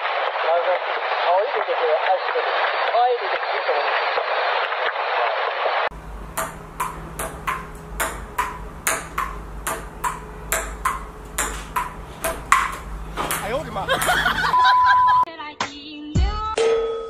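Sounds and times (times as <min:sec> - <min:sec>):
low hum: 0:05.9 - 0:15.3
table tennis ball rally: 0:06.3 - 0:15.2.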